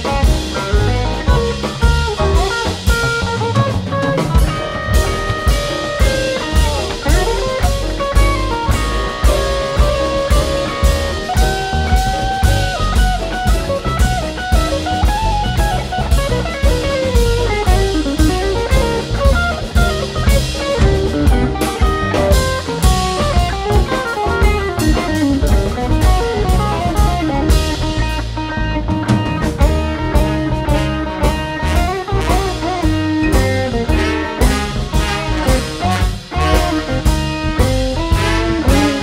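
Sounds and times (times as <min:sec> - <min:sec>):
drum kit: 0:00.0 - 0:39.0
upright bass: 0:00.0 - 0:39.0
horn section held notes: 0:33.9 - 0:37.2, 0:38.1 - 0:39.0.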